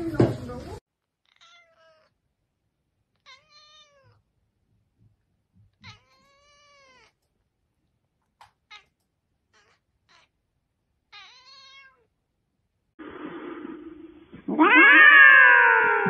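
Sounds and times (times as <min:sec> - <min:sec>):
cat meowing: 0:01.2 - 0:02.2, 0:03.2 - 0:04.2, 0:05.7 - 0:07.2, 0:08.7 - 0:10.4, 0:11.1 - 0:12.1, 0:14.4 - 0:16.0.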